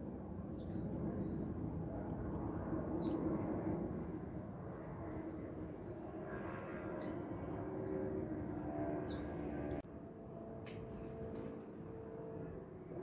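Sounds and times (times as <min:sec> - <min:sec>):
small birds chirping: 0:00.5 - 0:01.6, 0:02.9 - 0:03.7, 0:05.9 - 0:09.8.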